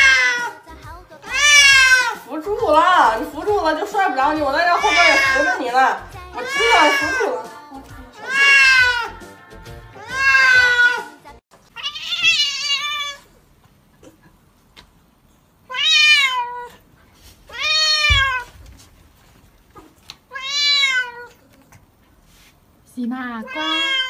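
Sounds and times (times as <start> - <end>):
cats meowing: 0.0 - 2.9, 4.4 - 9.3, 9.9 - 13.4, 15.7 - 16.8, 17.5 - 18.6, 19.7 - 21.8, 23.4 - 24.0.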